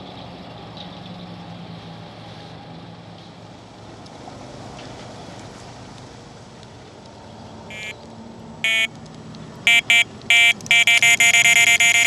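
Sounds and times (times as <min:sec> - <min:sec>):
bite alarm beeping: 0:07.7 - 0:08.0, 0:08.6 - 0:08.9, 0:09.7 - 0:12.0.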